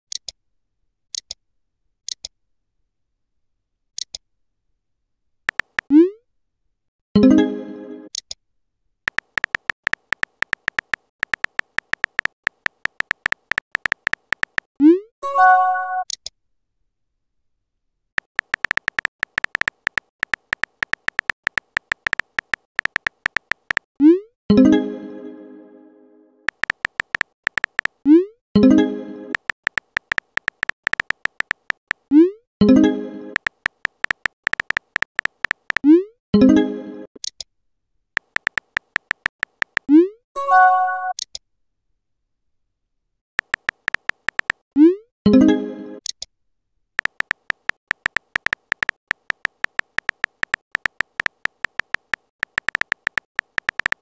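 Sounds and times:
sharp interface clicks: 5.5s - 6.0s, 9.1s - 14.7s, 18.2s - 23.9s, 26.5s - 28.2s, 29.3s - 32.2s, 33.4s - 35.9s, 38.2s - 40.0s, 43.4s - 44.6s, 47.0s - 54.0s
soft interface clicks: 5.5s - 6.0s, 9.1s - 14.7s, 18.3s - 23.9s, 26.5s - 28.1s, 29.3s - 32.0s, 33.4s - 35.9s, 38.2s - 39.9s, 43.4s - 44.6s, 47.0s - 54.0s.

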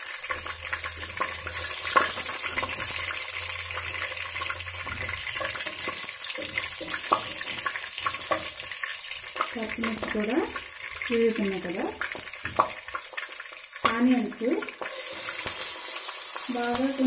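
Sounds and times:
spices sizzling in oil: 0.0s - 17.0s
spatula stirring and knocking: 0.3s - 11.1s, 12.0s - 14.0s.

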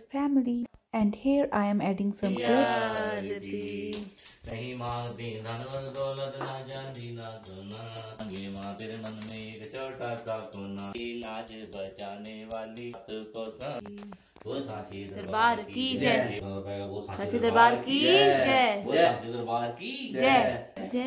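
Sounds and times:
devotional song with steady beat: 2.2s - 15.2s.

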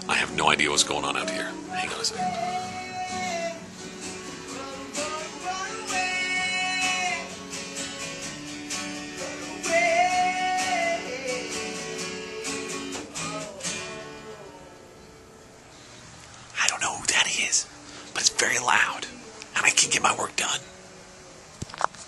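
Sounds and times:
person singing long wavering notes: 0.0s - 7.4s, 9.2s - 15.2s
strummed guitar: 0.0s - 22.0s.

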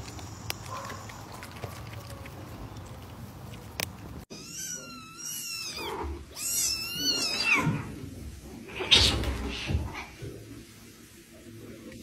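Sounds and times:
cat meowing: 4.3s - 7.8s.

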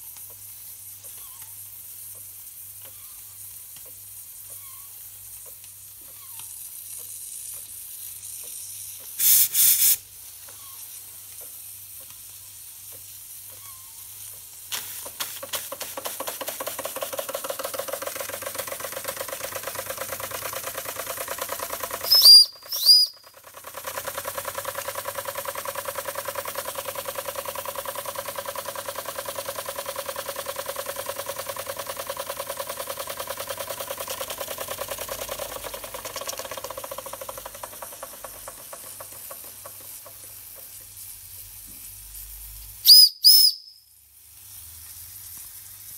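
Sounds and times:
faint steam hiss: 0.0s - 17.0s, 37.6s - 45.9s
steam engine chuffing: 9.1s - 10.0s, 15.3s - 41.4s
burst of steam: 9.2s - 10.1s
high-pitched steam whistle blasts: 22.0s - 23.2s, 42.8s - 44.0s.

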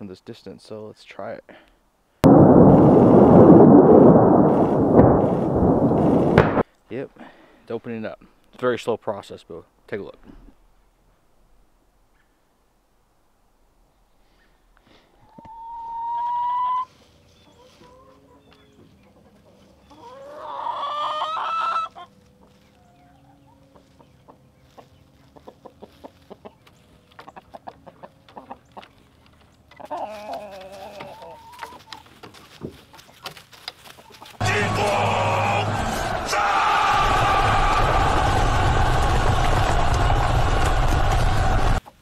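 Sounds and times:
sudden loud burst: 2.2s - 6.6s, 34.4s - 41.8s
chickens calling: 15.2s - 34.6s
chickens clucking: 15.3s - 34.4s.

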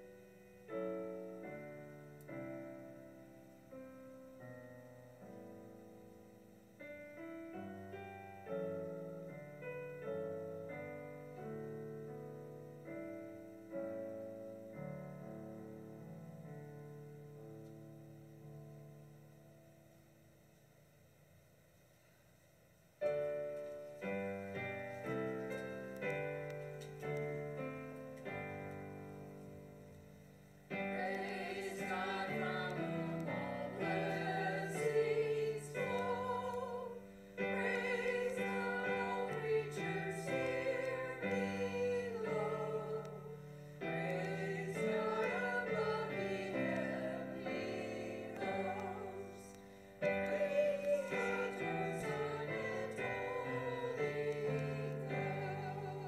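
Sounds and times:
piano playing chords: 0.0s - 20.0s, 23.0s - 56.0s
person singing with vibrato: 30.9s - 56.0s.

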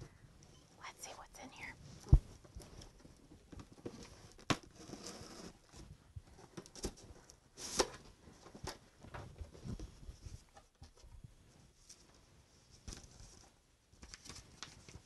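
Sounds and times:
cardboard scraping and rustling: 2.1s - 10.7s.

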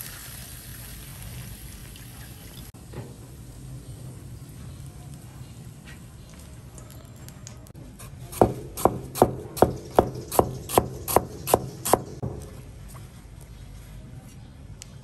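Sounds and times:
sharp rhythmic knocks: 8.4s - 12.4s.

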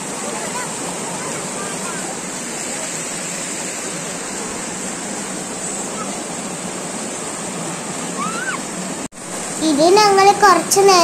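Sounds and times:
waterfall rushing over rocks: 0.0s - 11.0s
high voice: 9.6s - 11.0s.

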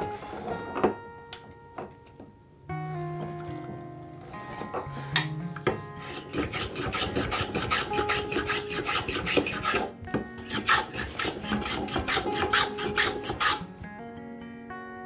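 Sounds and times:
rasp scraping wood: 6.0s - 13.7s.

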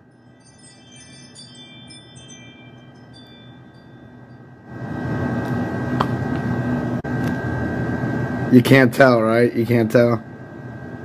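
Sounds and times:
doorbell chime: 0.0s - 4.7s.

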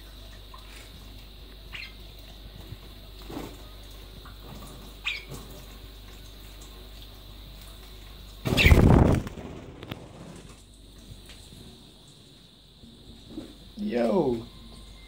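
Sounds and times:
bird chirp: 1.7s - 2.0s, 5.0s - 5.4s
wet wings flapping: 8.4s - 10.6s.

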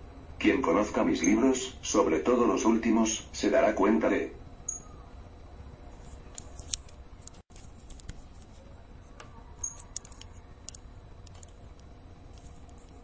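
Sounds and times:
small clicks: 9.2s - 13.0s.

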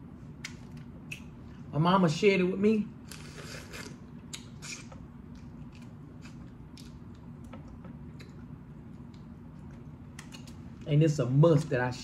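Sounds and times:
faint steady hum: 0.0s - 12.0s
wet sucking mouth sounds: 3.1s - 5.0s.

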